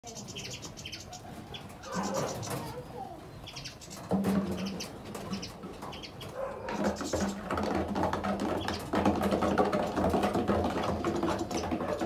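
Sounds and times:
finches twittering: 0.0 - 2.6, 3.4 - 6.3.

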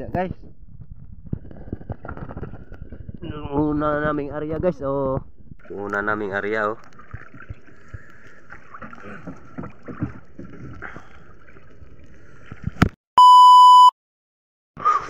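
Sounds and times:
water sounds: 5.5 - 12.9
test-tone beep: 13.2 - 13.9.

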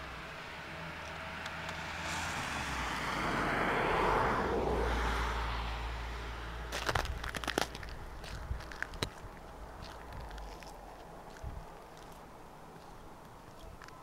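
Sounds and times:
car passing on wet road: 0.1 - 6.7
footsteps crunching in snow: 6.7 - 14.0.

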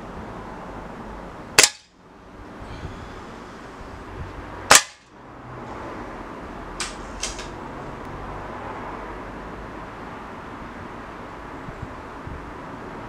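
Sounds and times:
air rifle shot: 1.6 - 1.9, 4.7 - 5.0.

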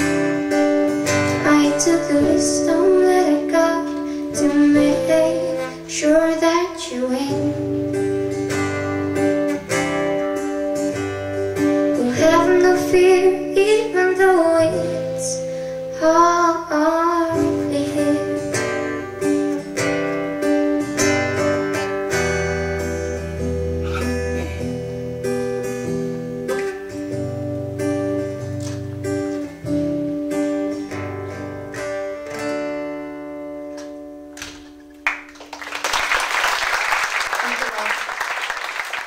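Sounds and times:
solo acoustic guitar: 0.0 - 35.3
audience applause: 35.0 - 39.0.

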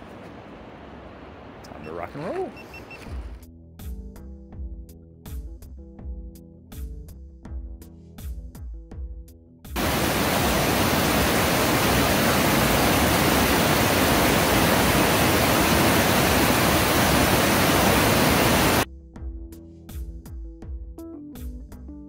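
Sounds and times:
creek rushing over rocks: 9.8 - 18.9.

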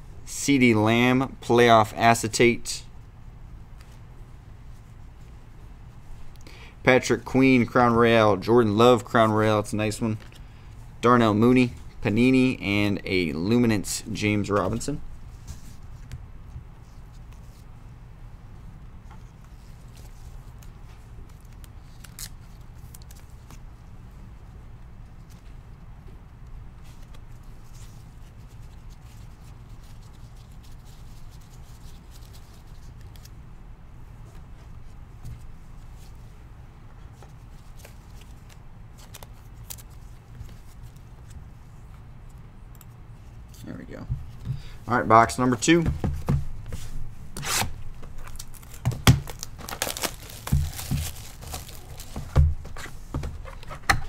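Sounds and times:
steady low hum: 0.0 - 54.0
shrink wrap crinkling and tearing: 20.4 - 23.6, 37.8 - 41.0, 48.2 - 52.4.

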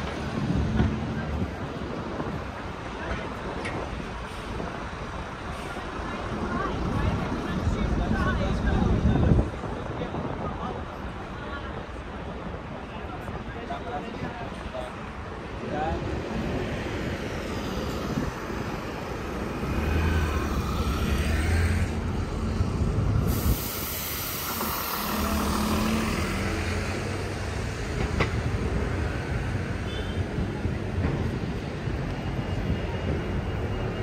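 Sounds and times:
burst of hiss: 23.2 - 25.6.

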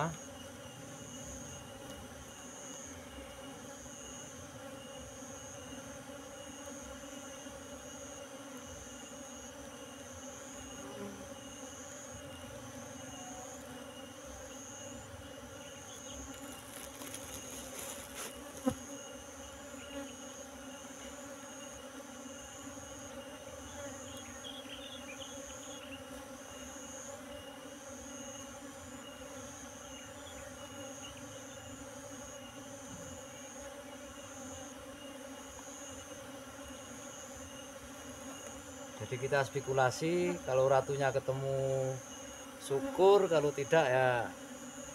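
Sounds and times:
bees buzzing: 0.0 - 44.9
high insect call: 0.0 - 44.9.

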